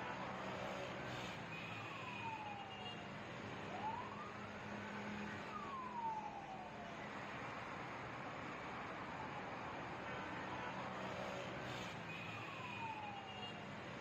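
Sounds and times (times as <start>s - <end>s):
street noise: 0.0s - 14.0s
distant siren wailing: 1.6s - 3.0s, 3.7s - 6.8s, 12.1s - 13.6s.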